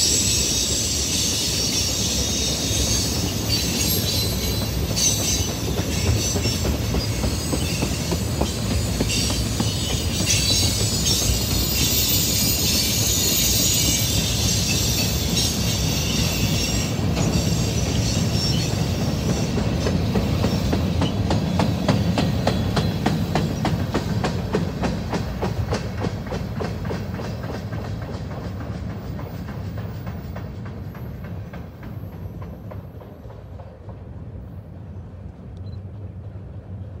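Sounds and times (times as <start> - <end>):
high-pitched wheel squeal: 0.0 - 19.0
train wheels clicking on rails: 0.0 - 37.0.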